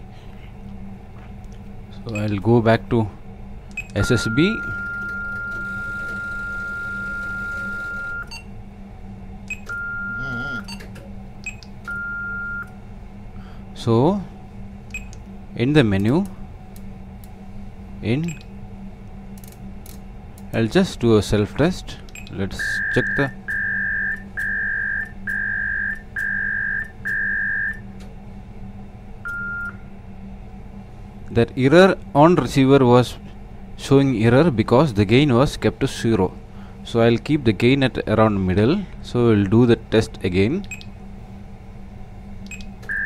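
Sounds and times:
faint low hum: 0.0s - 43.0s
radio beeping: 4.0s - 6.6s.

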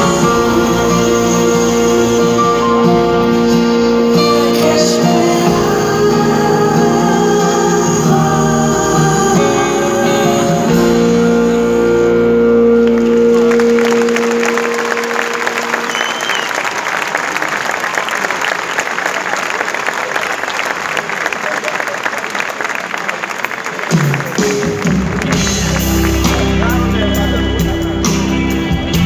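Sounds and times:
live band final chord ringing: 0.0s - 17.4s, 24.0s - 29.0s
audience applause: 12.8s - 27.7s.

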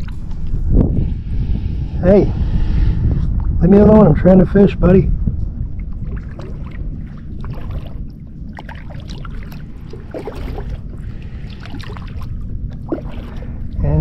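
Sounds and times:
low rumble: 0.0s - 14.0s
paddle splashing through water: 6.0s - 13.7s.

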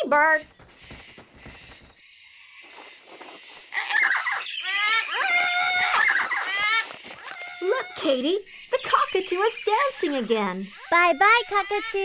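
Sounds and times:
cockatoos squawking: 3.1s - 12.0s.

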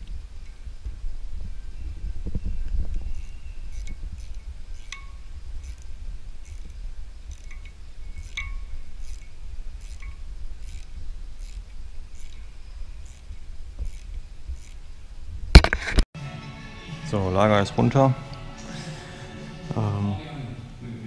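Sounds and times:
socket ratchet metallic clicks: 6.5s - 11.6s.

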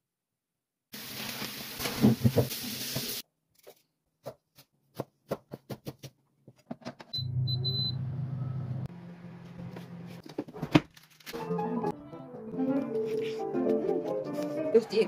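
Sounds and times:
knife chopping on plastic board: 4.2s - 6.2s
touch panel beeps: 7.2s - 8.6s.

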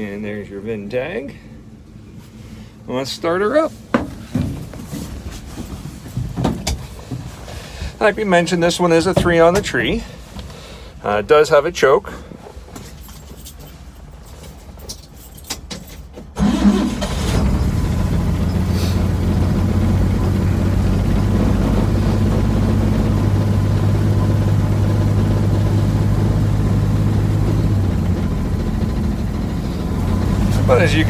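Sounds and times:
car engine starting and idling: 15.0s - 31.0s.

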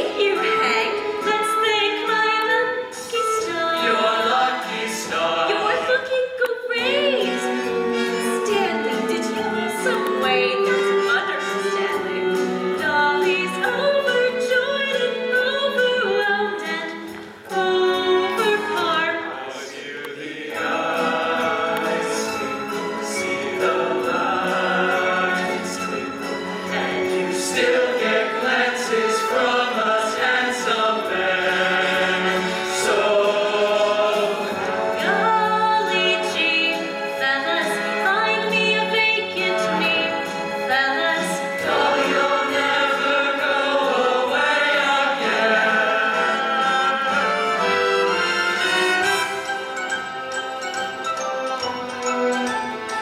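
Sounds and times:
musical accompaniment: 0.0s - 53.0s
cast singing in chorus: 18.0s - 35.2s, 41.4s - 48.2s.

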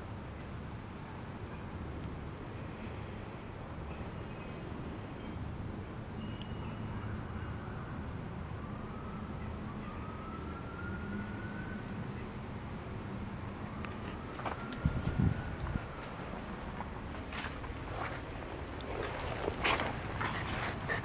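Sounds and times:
street traffic rumble: 0.0s - 21.0s
distant siren wailing: 6.2s - 16.8s.

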